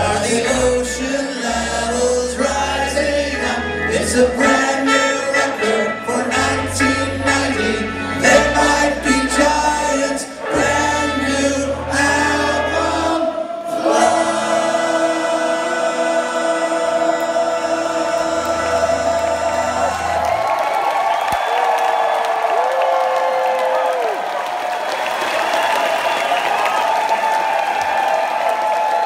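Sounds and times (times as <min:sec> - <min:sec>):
voices singing in harmony: 0:00.0 - 0:20.6.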